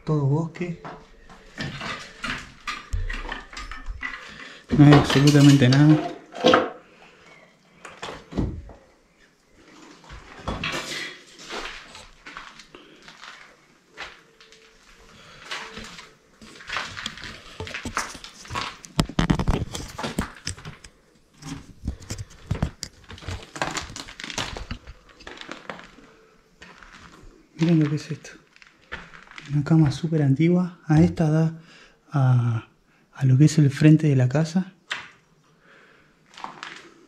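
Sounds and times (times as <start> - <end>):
knocks and scrapes: 1.4 - 6.8, 15.6 - 28.2
footsteps crunching on debris: 10.0 - 30.2, 36.3 - 37.0.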